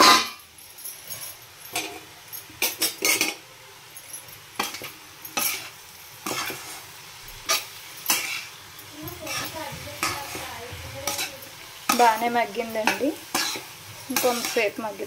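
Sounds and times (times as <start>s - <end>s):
metal spatula scraping pan: 0.0s - 0.4s, 4.6s - 6.9s, 7.5s - 14.9s
faint sizzle of frying: 0.0s - 15.0s.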